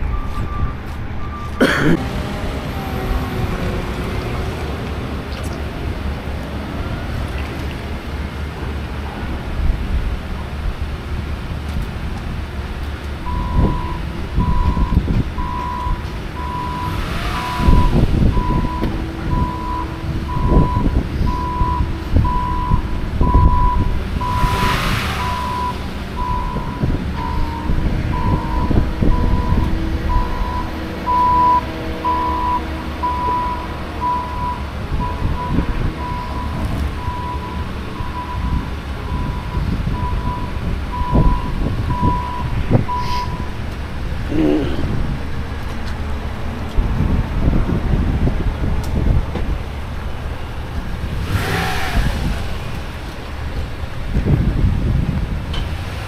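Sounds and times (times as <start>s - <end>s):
vehicle backup alarm beeping: 0.0s - 8.2s, 13.2s - 43.8s
heavy vehicles rumbling: 0.0s - 56.0s.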